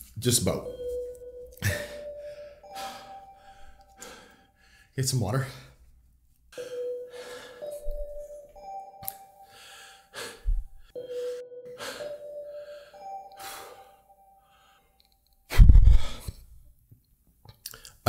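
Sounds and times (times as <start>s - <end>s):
soft background music: 0.2s - 4.0s, 6.6s - 10.3s, 10.9s - 14.6s
man breathing heavily and sighing: 9.4s - 16.5s.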